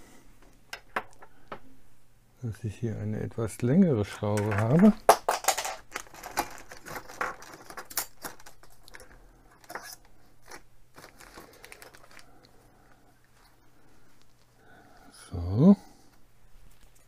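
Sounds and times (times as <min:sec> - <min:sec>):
small parts clattering: 0:04.1 - 0:12.3.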